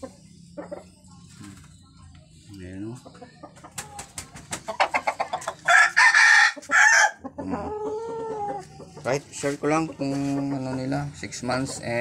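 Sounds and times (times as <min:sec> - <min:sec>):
rooster crowing: 0:05.7 - 0:07.2.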